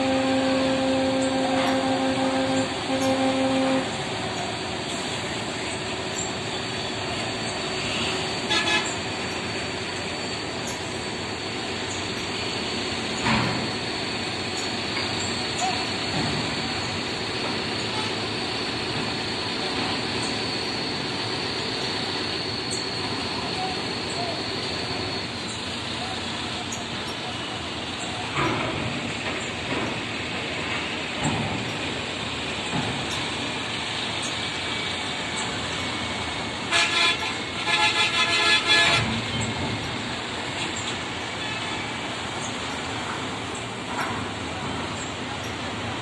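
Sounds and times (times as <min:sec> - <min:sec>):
vehicle horn: 0:00.0 - 0:04.0, 0:08.5 - 0:09.0, 0:36.7 - 0:39.2
engine drone: 0:00.0 - 0:46.0
traffic din: 0:00.0 - 0:46.0.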